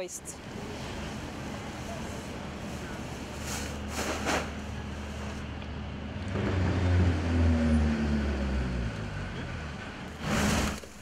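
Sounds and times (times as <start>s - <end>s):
furnace rumbling: 0.4s - 7.2s, 9.7s - 11.0s.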